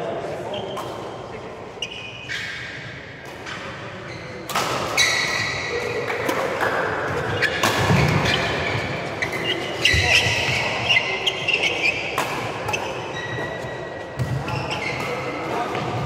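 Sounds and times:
court shoes squeaking: 0.4 - 16.0
racket hitting shuttlecock: 4.5 - 13.6.

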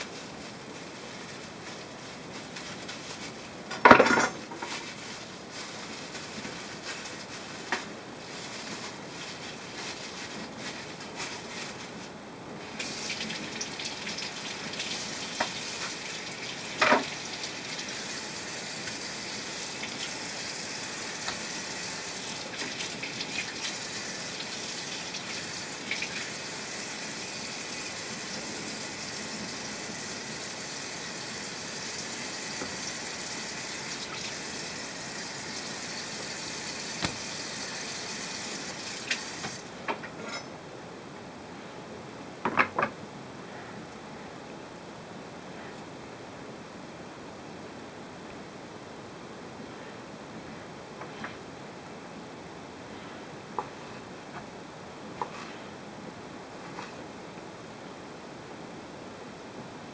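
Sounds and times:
tap water running: 12.7 - 39.7.

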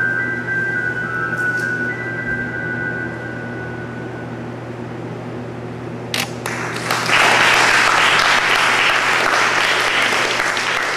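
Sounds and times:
audience applause: 6.4 - 10.9.

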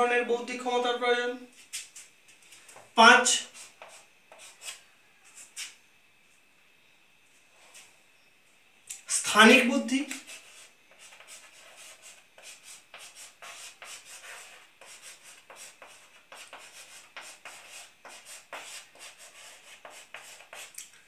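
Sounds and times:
chalk scratching on blackboard: 3.2 - 5.8, 9.9 - 20.8.

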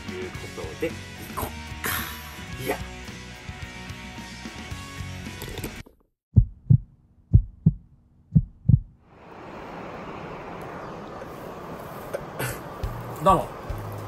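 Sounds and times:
heartbeat double thumps: 6.3 - 9.0
steady rushing noise: 8.4 - 14.0.

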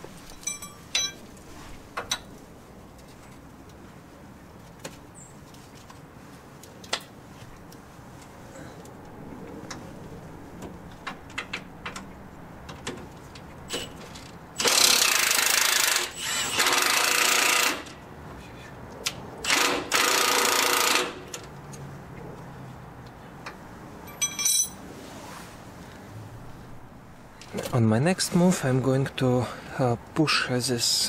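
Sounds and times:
tools tapping on metal: 0.3 - 1.3, 23.4 - 24.8.

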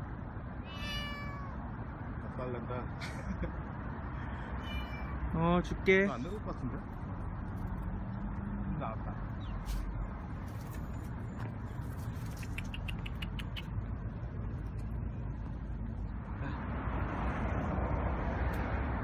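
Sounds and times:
road traffic rumble: 0.0 - 19.0
dry leaves and twigs crackling: 9.6 - 12.8.

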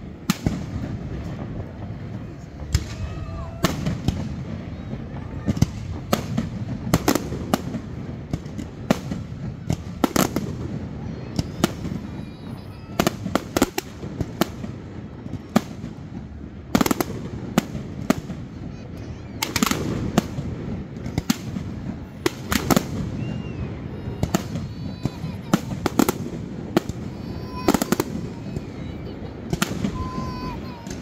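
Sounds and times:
fireworks bursting: 0.0 - 31.0.

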